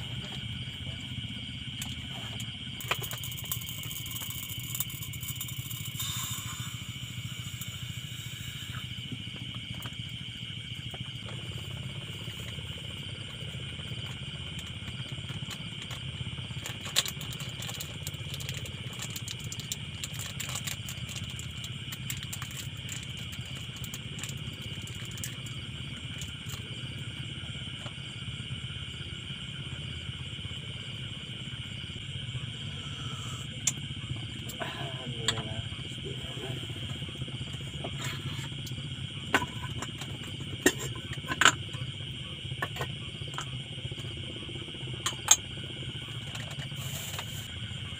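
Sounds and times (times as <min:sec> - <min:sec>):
low even hum: 0:00.0 - 0:47.9
night insects chorus: 0:00.0 - 0:47.9
small items clicking and clattering: 0:02.8 - 0:06.1, 0:16.6 - 0:25.4.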